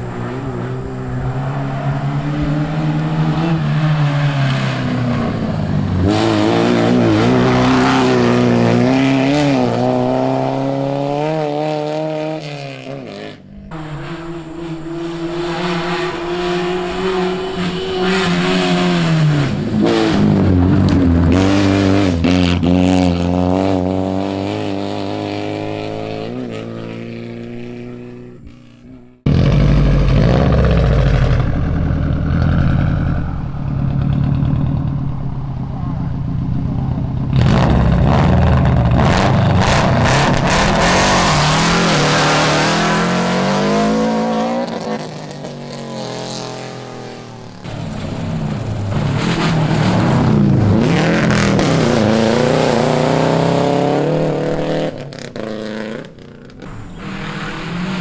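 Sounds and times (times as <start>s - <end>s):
rally car engines at full throttle: 0.0s - 58.0s
low engine rumble: 28.0s - 39.0s.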